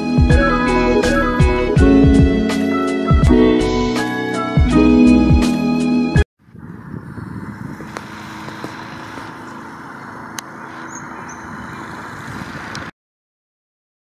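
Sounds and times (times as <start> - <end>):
outdoor background noise: 6.4 - 12.9.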